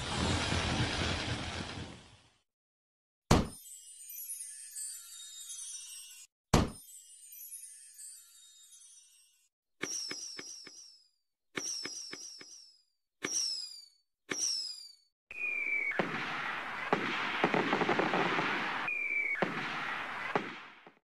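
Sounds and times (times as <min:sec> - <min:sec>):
crackling of bursting fireworks: 0:00.0 - 0:02.2, 0:15.3 - 0:21.0
falling whistle: 0:15.3 - 0:16.9, 0:18.8 - 0:20.3
firework launch pops: 0:15.8 - 0:21.0.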